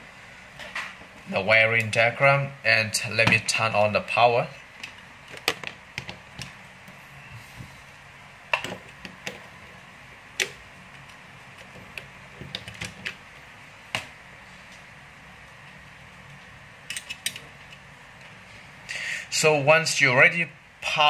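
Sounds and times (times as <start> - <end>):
parts and tools clicking: 16.8 - 17.9.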